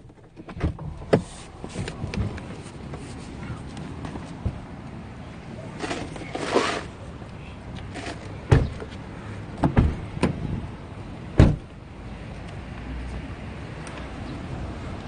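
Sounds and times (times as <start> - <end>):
car door shutting: 0.1 - 3.0, 8.0 - 8.9, 11.4 - 11.7
handling knocks and thumps: 3.9 - 4.7, 7.9 - 9.0, 9.6 - 10.5.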